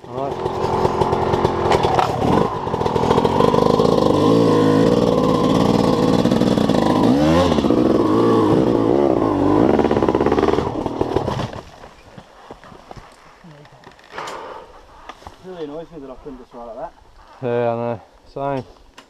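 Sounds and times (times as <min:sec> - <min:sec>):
motorcycle engine revving: 0:00.0 - 0:11.7.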